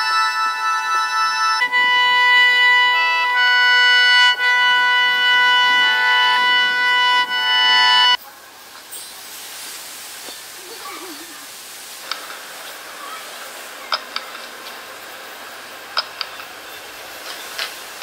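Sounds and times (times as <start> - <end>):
panpipes playing long notes: 0.0 - 8.2.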